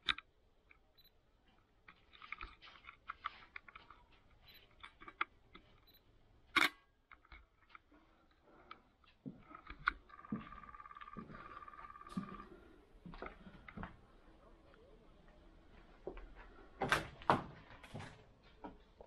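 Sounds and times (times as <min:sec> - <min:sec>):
faint clicks and ticks: 0:07.1 - 0:14.0.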